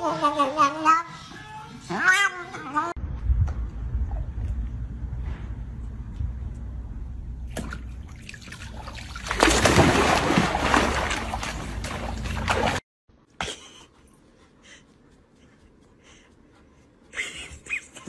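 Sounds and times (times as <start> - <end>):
dog splashing into pool water: 7.5 - 12.8.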